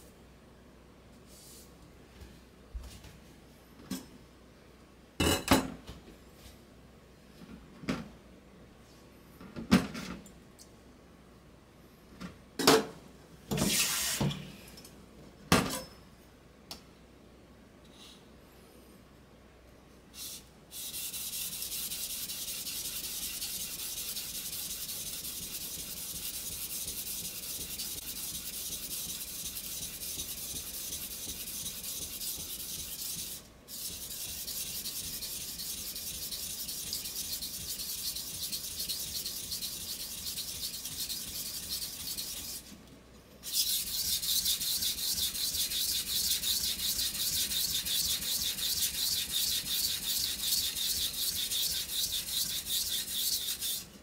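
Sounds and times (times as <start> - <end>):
knife scraping on whetstone: 20.8 - 42.7, 43.4 - 53.9.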